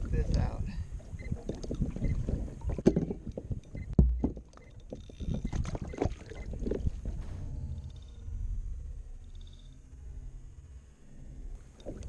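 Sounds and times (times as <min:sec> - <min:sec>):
heavy thump: 0:04.0 - 0:04.4.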